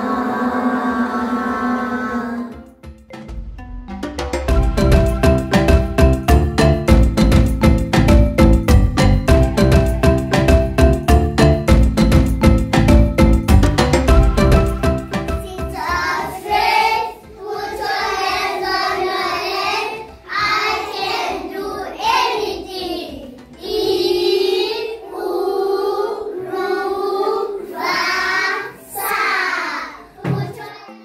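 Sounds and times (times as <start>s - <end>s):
children singing in unison: 0.0s - 2.7s, 14.1s - 30.9s.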